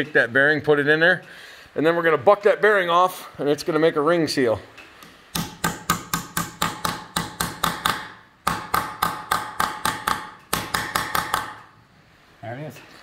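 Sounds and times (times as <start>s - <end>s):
hammer tapping on metal: 5.3s - 11.7s.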